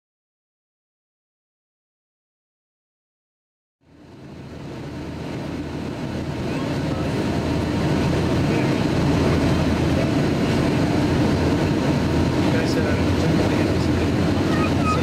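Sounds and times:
aircraft engines humming: 0:03.8 - 0:15.0
rush of airflow: 0:03.9 - 0:15.0.

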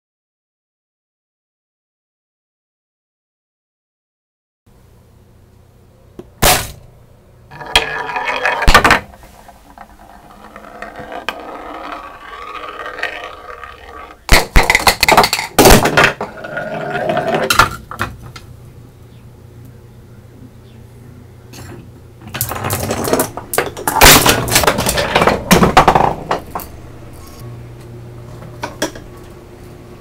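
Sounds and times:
marble rolling along metal channel: 0:07.5 - 0:18.0, 0:22.2 - 0:27.4
parts clattering and clinking: 0:21.5 - 0:27.4.

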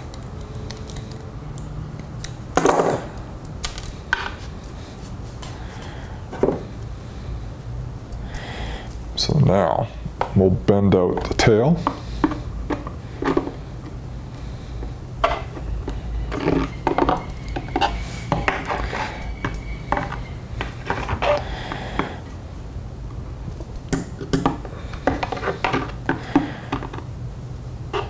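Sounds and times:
wire bending metallic clicks: 0:00.0 - 0:02.5
steady low hum: 0:00.0 - 0:28.0.

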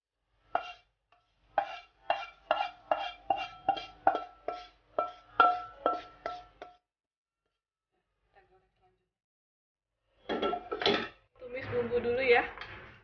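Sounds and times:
wooden spatula scraping metal wok: 0:00.4 - 0:06.8.

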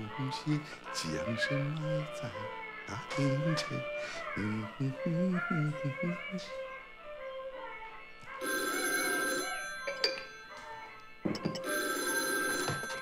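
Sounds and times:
soft background music: 0:00.0 - 0:13.0
telephone bell ringing: 0:08.4 - 0:13.0.

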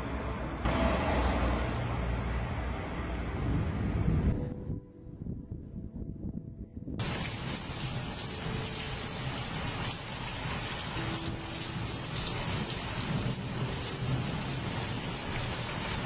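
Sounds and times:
thunder rumbling: 0:03.4 - 0:16.0
heavy rain: 0:07.0 - 0:16.0.

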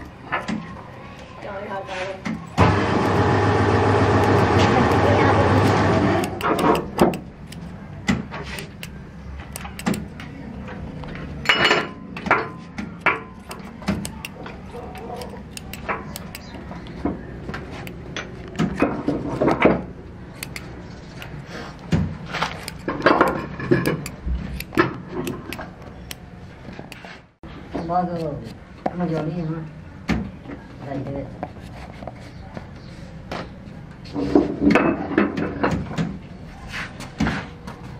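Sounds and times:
scissors snipping rubber: 0:04.2 - 0:07.7, 0:08.5 - 0:10.2, 0:13.0 - 0:16.7, 0:20.3 - 0:21.4, 0:22.4 - 0:26.2.

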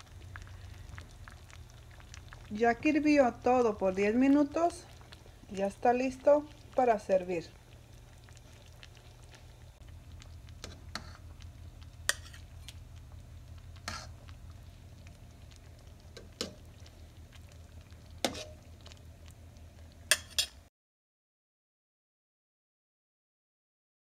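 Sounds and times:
low steady hum: 0:00.0 - 0:20.7
metal ladle clinking and scraping: 0:12.1 - 0:12.4, 0:20.1 - 0:20.6.

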